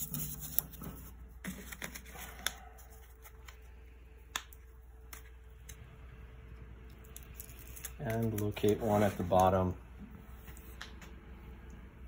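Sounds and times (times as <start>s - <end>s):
soft handling noises: 7.1s - 11.2s.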